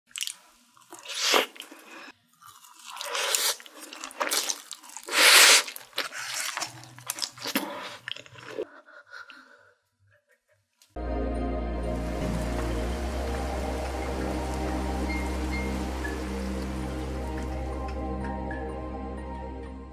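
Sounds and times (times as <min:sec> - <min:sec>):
wet chewing: 0:00.1 - 0:09.4
loud noodle slurp: 0:01.0 - 0:01.9, 0:03.0 - 0:08.6
biting into food: 0:02.4 - 0:08.6.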